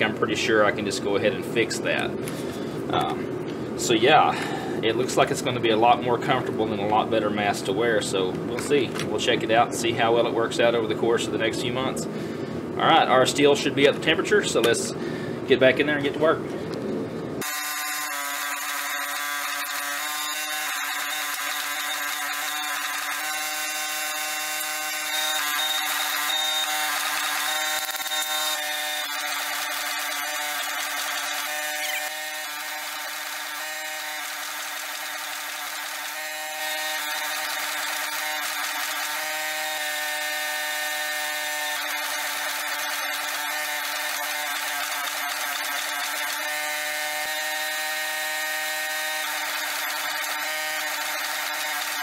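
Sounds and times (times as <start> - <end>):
forging press mechanical whine: 16.9 - 52.0.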